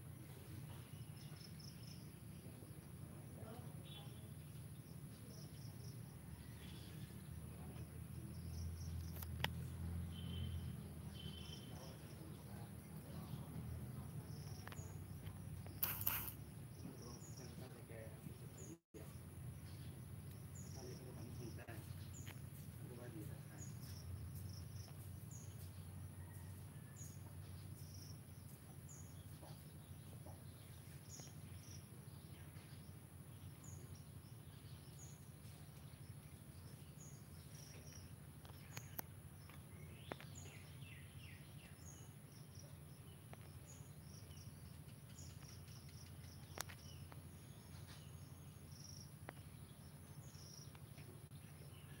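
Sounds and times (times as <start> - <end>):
short high chirps: 15.8 - 16.4.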